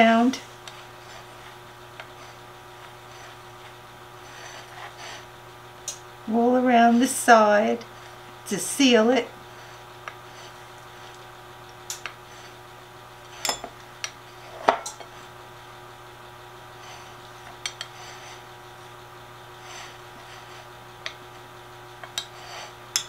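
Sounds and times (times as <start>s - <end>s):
faint steady hum: 0.0s - 23.0s.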